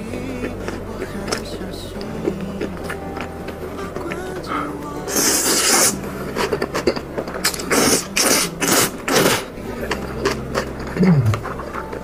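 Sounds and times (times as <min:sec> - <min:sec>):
wet chewing: 0:00.0 - 0:12.0
slurping noodles: 0:04.5 - 0:11.7.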